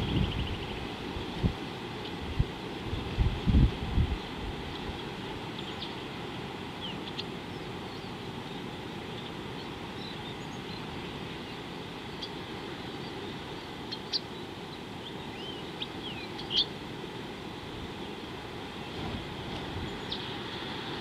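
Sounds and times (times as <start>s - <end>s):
wind rumble on microphone: 0.0s - 5.5s, 18.8s - 21.0s
faint bird chirps: 6.8s - 16.8s.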